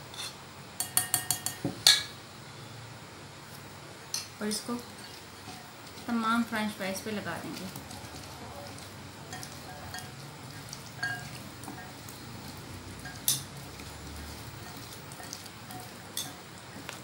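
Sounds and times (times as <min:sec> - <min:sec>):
wet squishing and rustling: 0:04.7 - 0:17.0.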